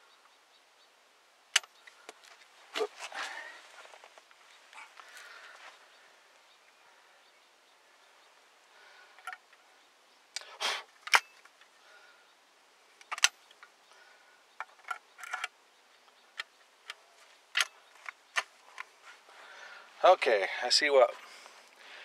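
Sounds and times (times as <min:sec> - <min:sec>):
shotgun action metal clicks: 0:01.5 - 0:02.0, 0:13.0 - 0:13.7, 0:16.3 - 0:18.9.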